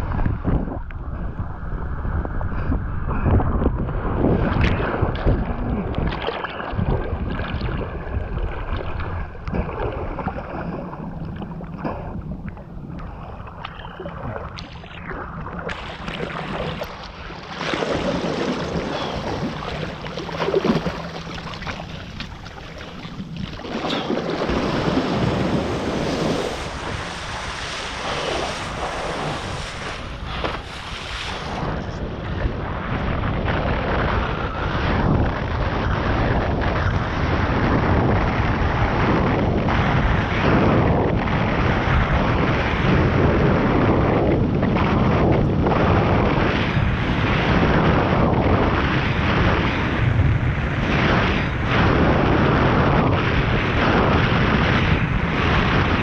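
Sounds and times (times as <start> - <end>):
wind buffeting microphone: 0.0 - 56.0
rushing splashing water: 4.4 - 31.8.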